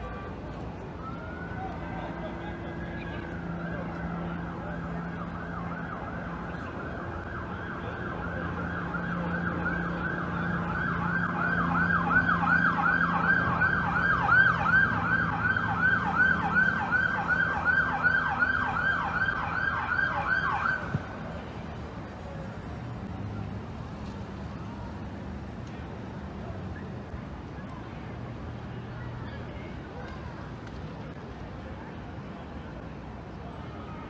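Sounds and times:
police siren yelping: 0:01.0 - 0:21.0.

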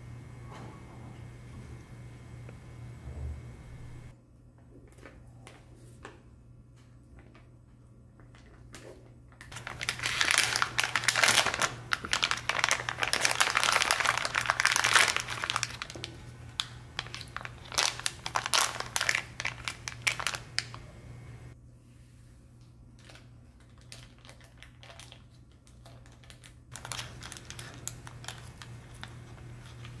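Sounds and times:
plastic packaging crinkling: 0:08.3 - 0:20.9, 0:23.0 - 0:30.0.

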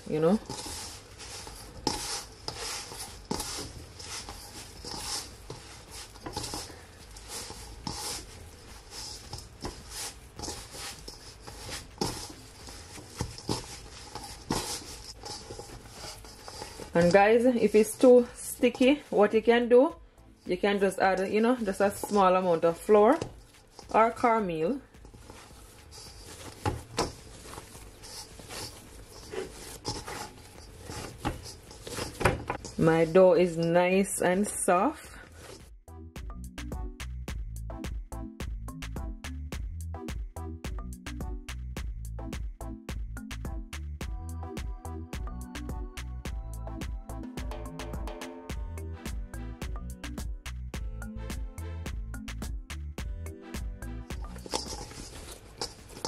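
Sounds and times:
hand squishing dough in a bowl: 0:00.0 - 0:19.7, 0:20.4 - 0:35.7, 0:54.0 - 0:56.0.

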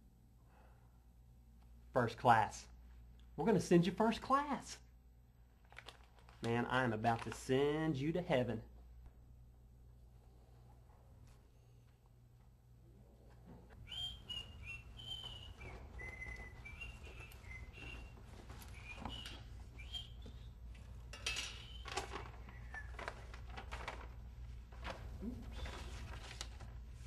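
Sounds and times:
person whistling a tune: 0:13.9 - 0:20.5.

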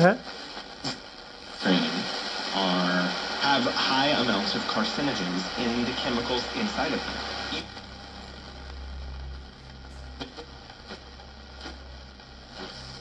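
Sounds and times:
radio broadcast voice: 0:00.0 - 0:11.8
radio static hiss: 0:00.0 - 0:13.0
low hum: 0:05.4 - 0:13.0.

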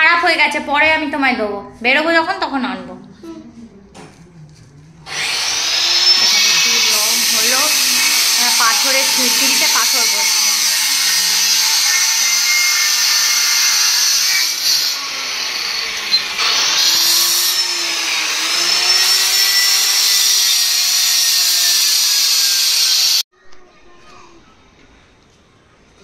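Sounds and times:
electric power tool whining: 0:05.1 - 0:23.2.

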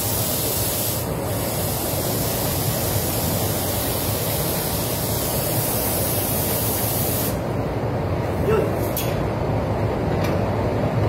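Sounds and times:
spray gun hiss: 0:00.0 - 0:07.6
rushing air in spray booth: 0:00.0 - 0:09.4.

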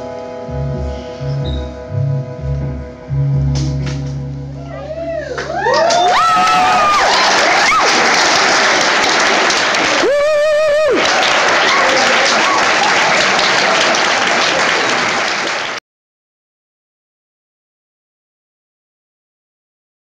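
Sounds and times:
audience applauding: 0:05.3 - 0:15.8
wavering cheering call: 0:09.9 - 0:12.8.

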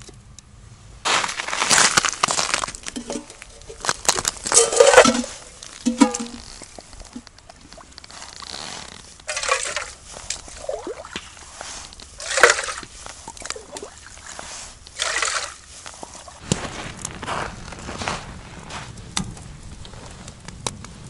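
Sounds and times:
water splashing: 0:04.5 - 0:16.4
water pouring into metal pot: 0:09.3 - 0:10.0, 0:12.2 - 0:12.8, 0:15.0 - 0:15.5.

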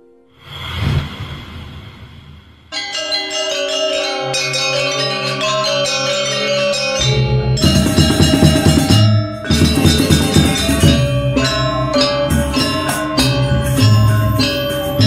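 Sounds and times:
metallophones ringing melody: 0:02.7 - 0:15.0
heavy drum strokes: 0:07.6 - 0:11.7.

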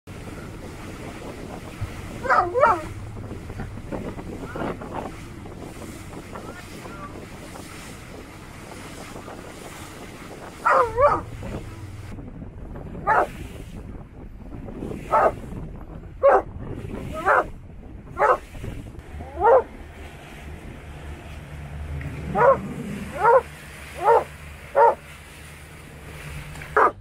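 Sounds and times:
water noise: 0:00.0 - 0:27.0
wind on microphone: 0:00.1 - 0:27.0
dog crying: 0:02.2 - 0:02.9.

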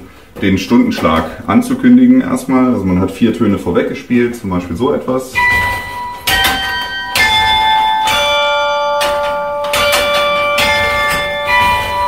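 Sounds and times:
carillon bells chiming: 0:05.3 - 0:12.0.

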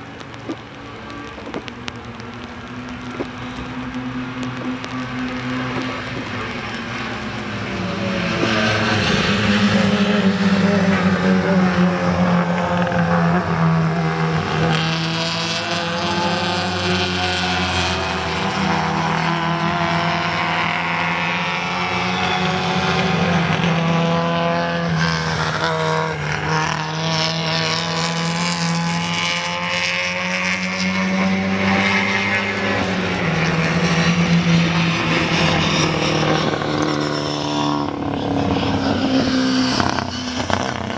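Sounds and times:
race car engines passing: 0:00.0 - 0:40.9.

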